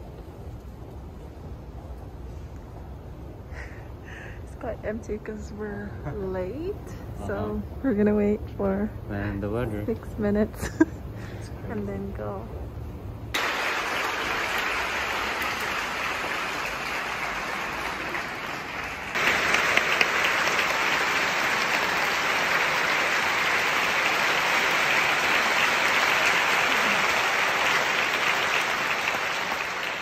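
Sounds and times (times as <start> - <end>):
audience applauding: 13.3 - 30.0.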